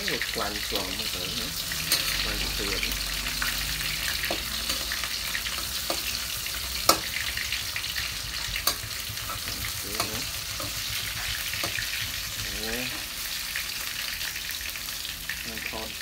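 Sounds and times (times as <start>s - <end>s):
oil sizzling in a wok: 0.0s - 16.0s
metal spatula clicking on pan: 8.6s - 9.4s.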